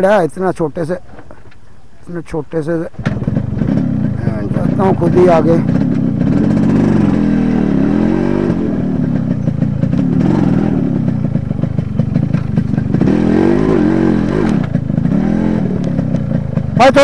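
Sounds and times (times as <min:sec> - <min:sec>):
motorcycle engine running: 0:02.7 - 0:17.0
bike rattling over stones: 0:11.1 - 0:13.0.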